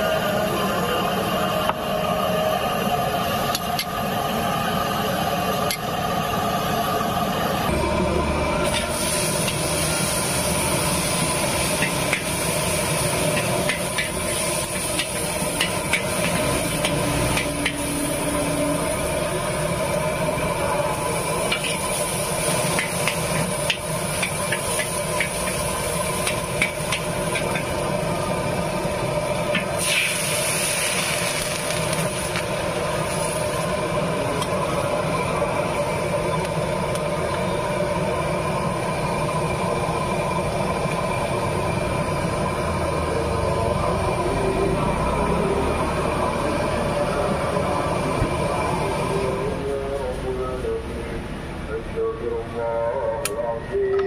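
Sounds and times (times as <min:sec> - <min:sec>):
gas burner rumble: 0:00.0 - 0:54.0
garlic sizzling in oil: 0:08.6 - 0:37.0.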